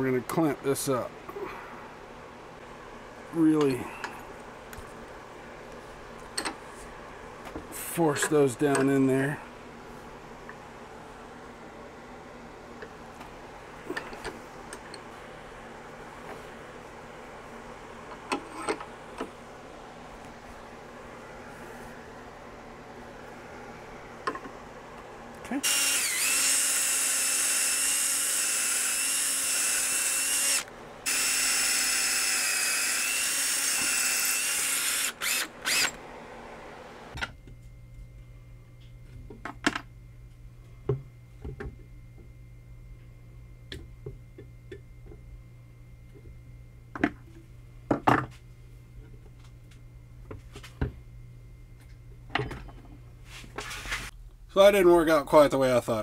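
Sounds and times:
steady low hum: 0.0s - 56.0s
cordless drill whining: 25.6s - 36.0s.

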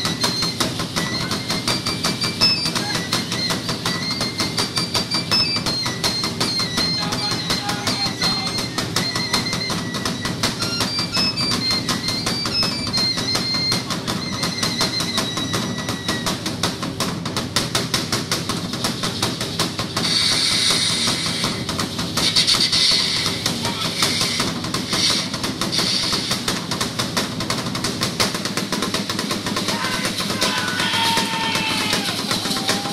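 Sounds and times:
high stepping melody: 0.0s - 15.9s
fast drumbeats: 0.0s - 32.9s
hissing rattle-like noise: 0.0s - 32.9s.

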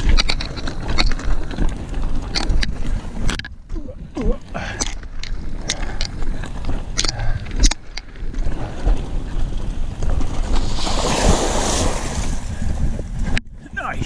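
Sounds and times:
bike rattling and knocking: 0.0s - 10.8s
wind buffeting microphone: 0.0s - 14.0s.

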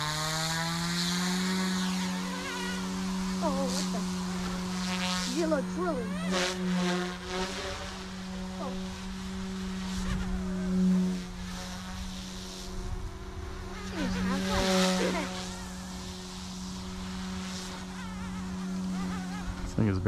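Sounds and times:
rc helicopter rotor hum: 0.0s - 20.0s.

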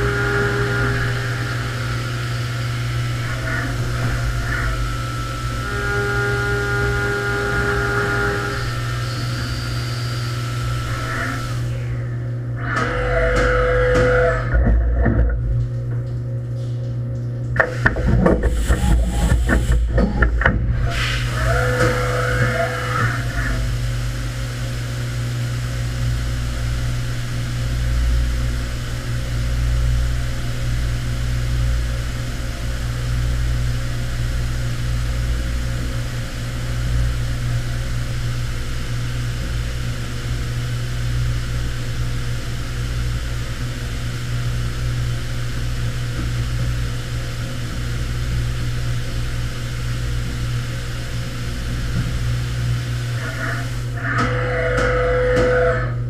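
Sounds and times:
low machine hum: 0.0s - 56.0s
coolant spray hiss: 20.9s - 25.2s.

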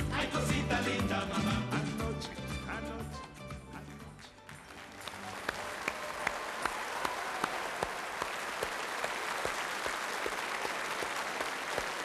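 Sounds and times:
audience clapping in unison: 3.8s - 12.0s.

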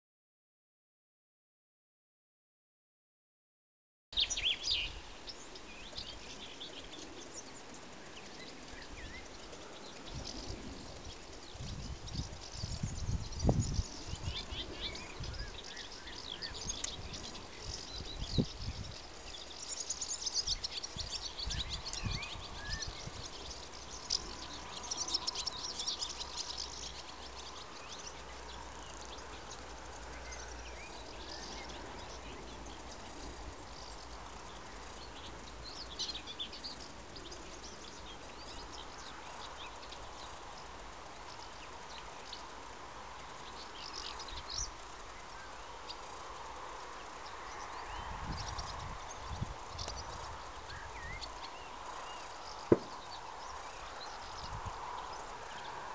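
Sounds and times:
swallows twittering: 4.2s - 46.2s, 46.9s - 55.8s
low thump: 52.7s - 53.0s.

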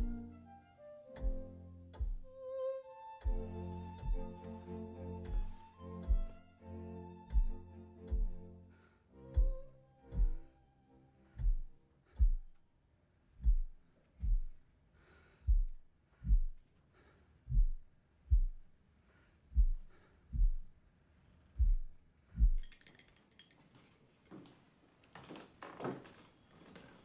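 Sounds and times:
low double thumps: 1.2s - 2.3s, 3.3s - 4.4s, 5.3s - 6.4s, 7.3s - 8.5s, 9.4s - 10.5s, 11.3s - 12.6s, 13.4s - 14.6s, 15.5s - 16.6s, 17.5s - 18.7s, 19.5s - 20.8s, 21.6s - 22.6s.

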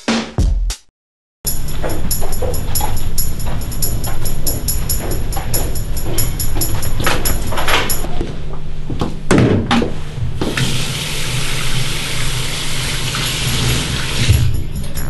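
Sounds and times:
tap water pouring into sink: 10.5s - 14.4s.

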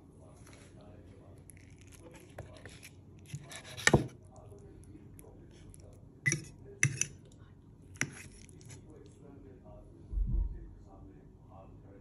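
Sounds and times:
fork clinking on china plate: 6.3s - 7.1s.

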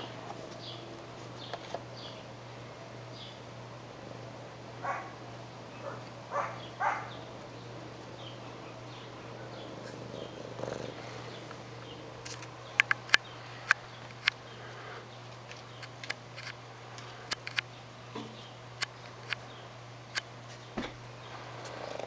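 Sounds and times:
cat purring: 4.8s - 13.7s, 21.3s - 22.0s.

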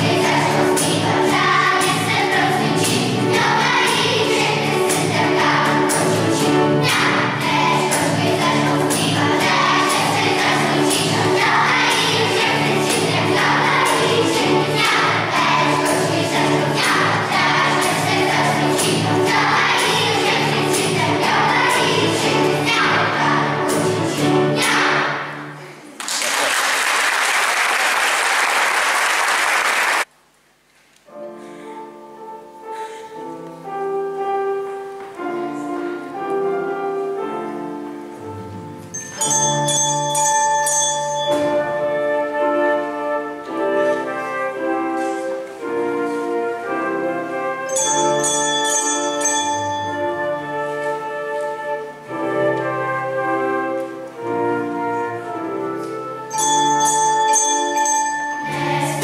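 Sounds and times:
high jingling rhythm: 0.0s - 25.2s, 38.9s - 42.3s, 47.7s - 50.8s, 56.3s - 59.0s
piano and band song: 0.0s - 26.0s, 31.1s - 59.0s
audience applause: 25.8s - 30.1s.

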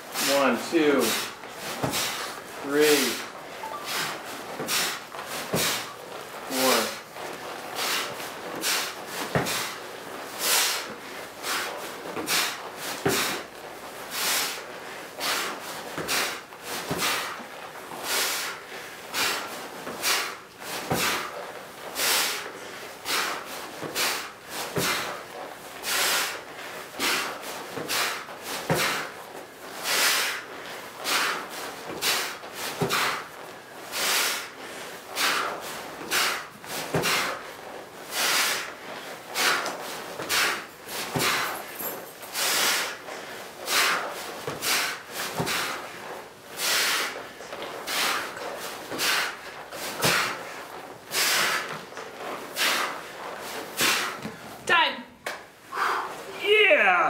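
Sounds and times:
man breathing heavily: 0.1s - 54.6s, 55.6s - 56.4s.

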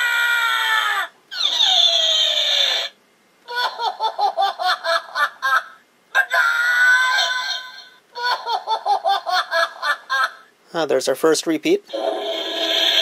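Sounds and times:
toy voice wail falling in pitch: 0.0s - 2.9s, 6.2s - 7.9s
toy speaker voice yell: 6.2s - 7.9s.

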